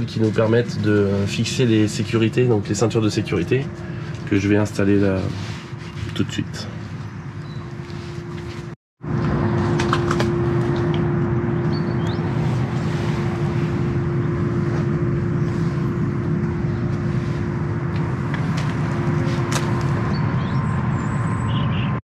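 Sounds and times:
pump motor hum: 2.5s - 4.4s, 8.2s - 21.3s.

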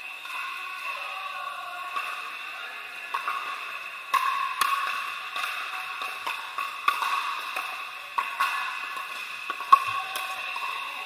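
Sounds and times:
indoor hall background noise: 0.0s - 11.0s
paddles hitting plastic balls: 3.0s - 11.0s
balls bouncing on court: 3.1s - 11.0s.

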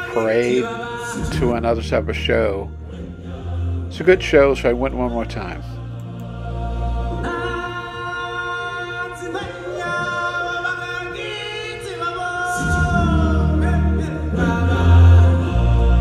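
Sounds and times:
singers chanting long notes: 0.0s - 16.0s
deep bass: 1.2s - 5.7s.

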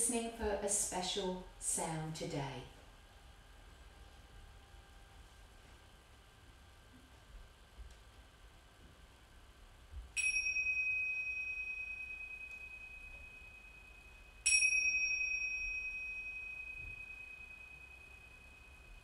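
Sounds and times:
tingsha cymbals ringing: 10.2s - 19.0s.

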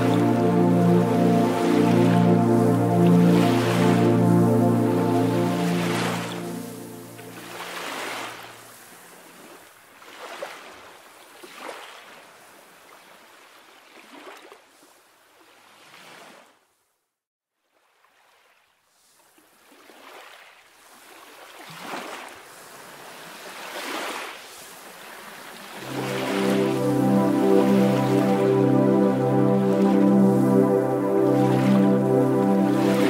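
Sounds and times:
small waves lapping around rocks: 7.6s - 16.6s, 17.7s - 25.9s.

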